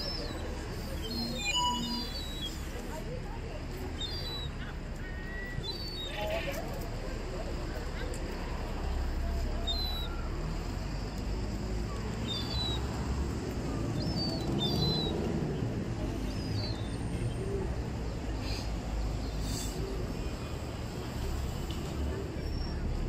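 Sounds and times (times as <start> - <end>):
low city rumble: 0.0 - 23.0
small bird chirping: 12.2 - 12.9.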